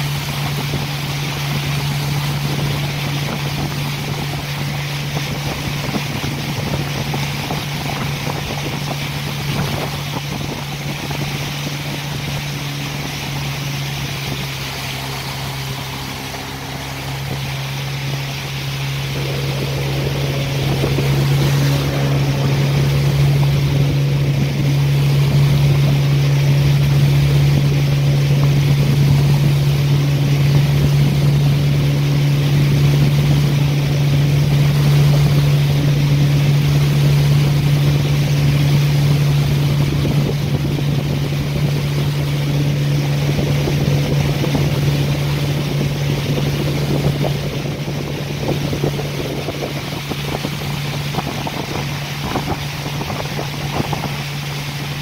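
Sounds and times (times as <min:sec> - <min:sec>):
motorboat engine humming: 0:00.0 - 0:55.0
rushing water: 0:00.0 - 0:55.0
wind noise: 0:00.0 - 0:55.0.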